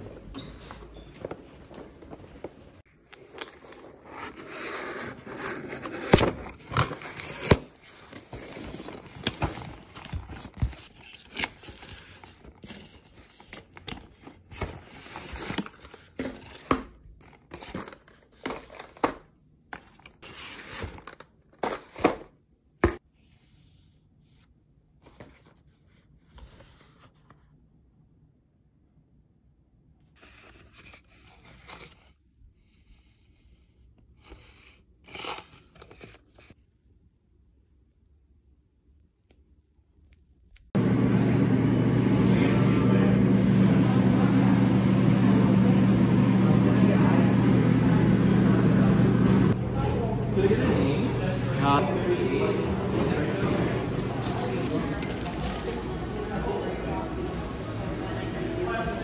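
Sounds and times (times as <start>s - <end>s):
packing paper crinkling and tearing: 3.1s - 16.6s, 53.8s - 56.0s.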